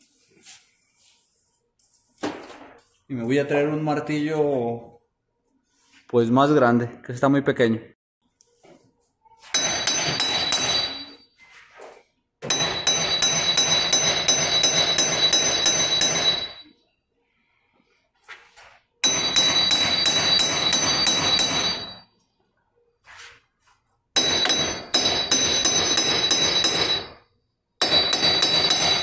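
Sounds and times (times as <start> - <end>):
metal ringing: 9.5 - 11.4, 12.4 - 16.8, 19.0 - 22.1, 24.2 - 27.2
air hammer chattering on metal: 12.5 - 16.7, 19.0 - 22.0, 24.2 - 27.2, 27.8 - 29.0.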